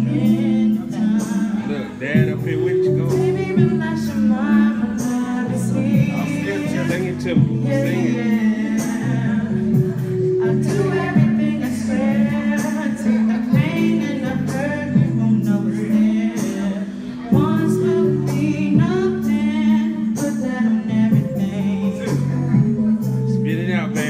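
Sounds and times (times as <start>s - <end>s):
backing track with held bass notes: 0.0s - 24.0s
person singing karaoke: 0.0s - 24.0s.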